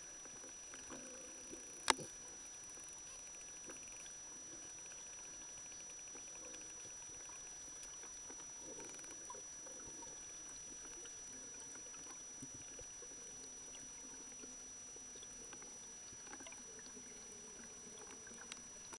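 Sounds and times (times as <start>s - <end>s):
faint underwater hiss: 0.0s - 19.0s
dolphin echolocation clicks: 1.6s - 2.2s.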